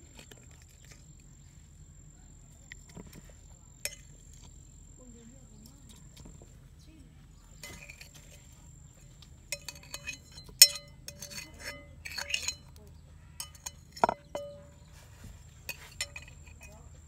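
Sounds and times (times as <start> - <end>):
cookware clinking: 7.6 - 8.2, 9.5 - 12.7, 13.4 - 14.9, 15.7 - 16.7.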